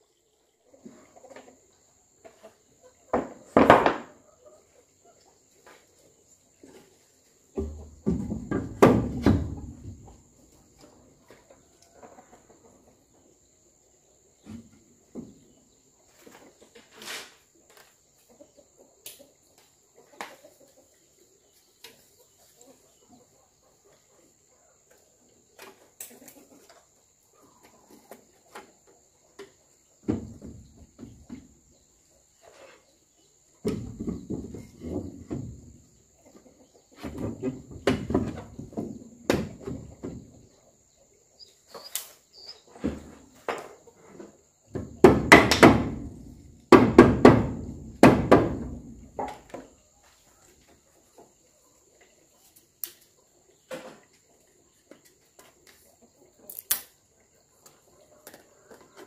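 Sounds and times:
wooden boards knocking and clattering: 0:03.1 - 0:04.2, 0:07.6 - 0:10.1, 0:30.0 - 0:31.6, 0:33.6 - 0:35.8, 0:37.0 - 0:40.4, 0:44.7 - 0:49.8.

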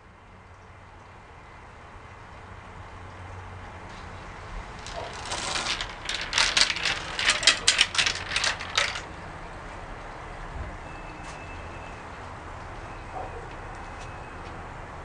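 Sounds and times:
marbles and metal parts clacking: 0:04.7 - 0:09.1.

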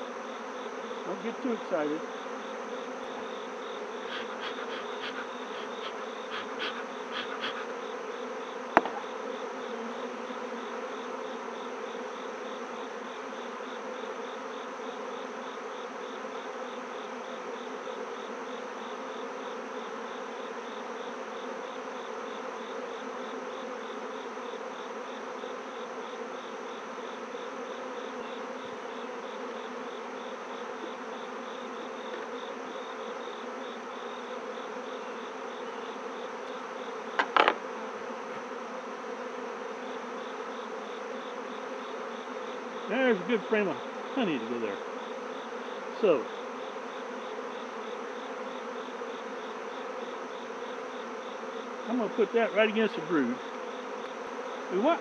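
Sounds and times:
bees buzzing: 0:00.0 - 0:55.0
sharp knocks: 0:08.8 - 0:09.1, 0:37.2 - 0:37.6.

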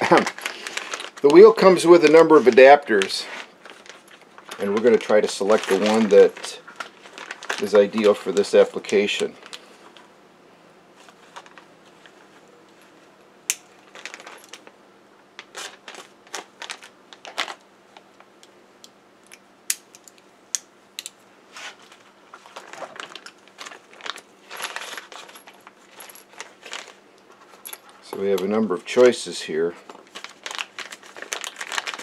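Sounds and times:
small metal parts clinking: 0:13.5 - 0:14.7, 0:22.5 - 0:28.5.

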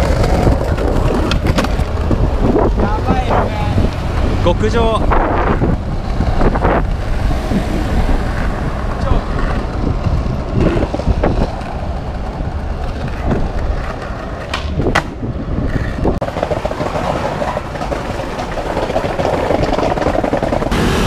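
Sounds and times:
skateboard landing clack: 0:00.0 - 0:02.1, 0:13.0 - 0:15.3
skateboard wheels rolling on stone: 0:00.0 - 0:21.0
skateboard tail snap: 0:14.4 - 0:15.2.

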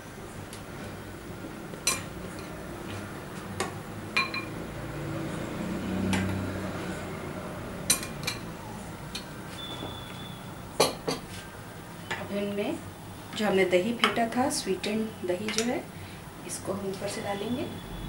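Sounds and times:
metal spoon clinking on glass bowl: 0:04.2 - 0:04.6.

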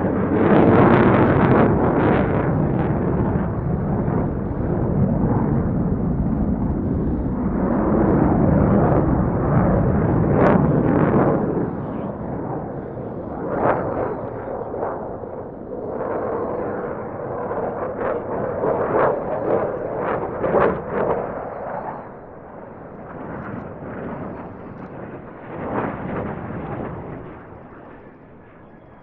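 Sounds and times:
fighter jet passing low: 0:00.0 - 0:29.0.

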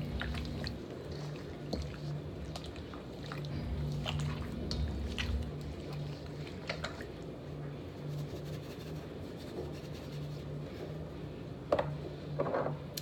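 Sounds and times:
low hum: 0:00.0 - 0:00.9, 0:03.5 - 0:07.0.

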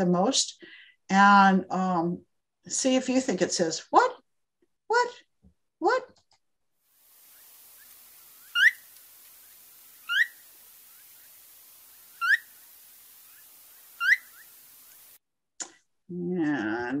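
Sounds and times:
recording hiss: 0:06.8 - 0:15.2
bird rising call notes: 0:07.0 - 0:15.2.

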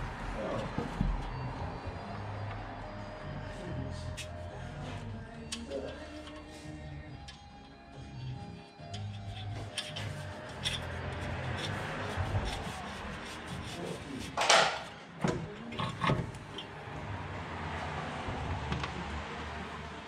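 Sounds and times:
metal scrape: 0:09.1 - 0:15.0.

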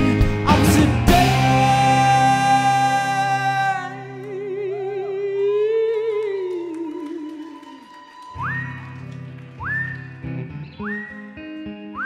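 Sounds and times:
rock band playing sustained chord: 0:00.0 - 0:04.2.

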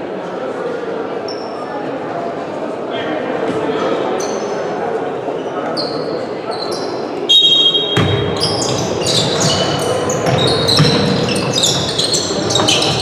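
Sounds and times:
din of echoing voices: 0:00.0 - 0:13.0
shoes squeaking on court floor: 0:05.4 - 0:13.0
ball bouncing: 0:07.9 - 0:13.0.

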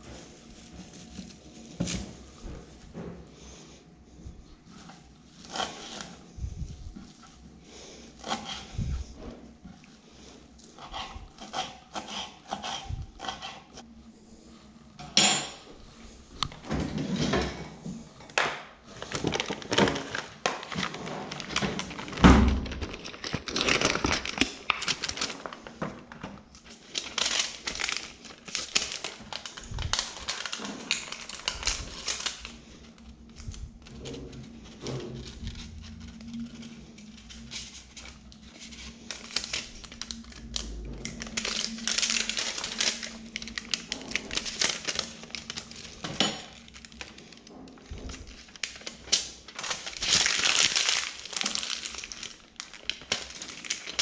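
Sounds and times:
goods and packaging clattering: 0:00.0 - 0:11.9, 0:16.4 - 0:54.0.

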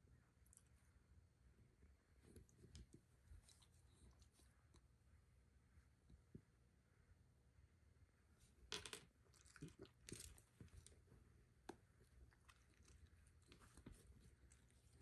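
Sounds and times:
dog licking and nibbling fur: 0:09.3 - 0:15.0.

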